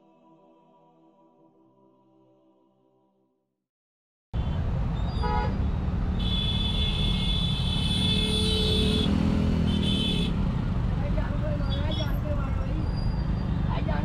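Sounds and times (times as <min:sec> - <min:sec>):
traffic engine rumble: 0:04.5 - 0:14.0
vehicle horns honking: 0:05.2 - 0:05.6, 0:06.2 - 0:10.4.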